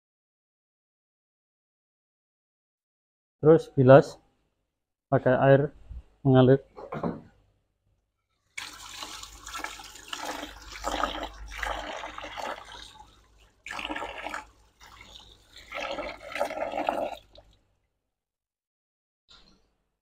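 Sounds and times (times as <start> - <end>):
hose water splashing on metal: 8.5 - 17.6.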